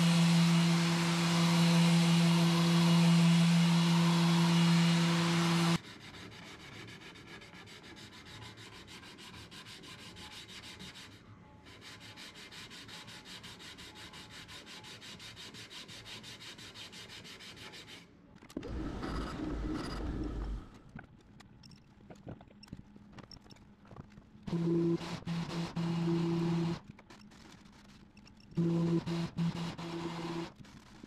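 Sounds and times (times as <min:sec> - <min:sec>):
orbital sander humming: 0:00.0 - 0:05.8
hand sanding strokes: 0:00.0 - 0:18.1.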